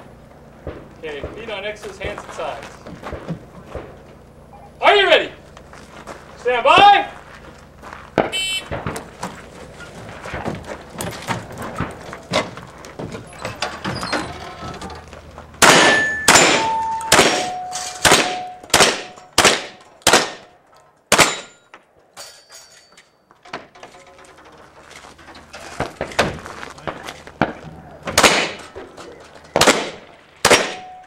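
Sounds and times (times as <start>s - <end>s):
gunshots: 15.6s - 20.5s, 21.1s - 21.6s, 26.8s - 28.9s, 29.5s - 31.0s
steel targets ringing: 15.6s - 20.5s, 21.1s - 23.3s, 29.5s - 31.0s
shot timer beep: 15.9s - 17.7s.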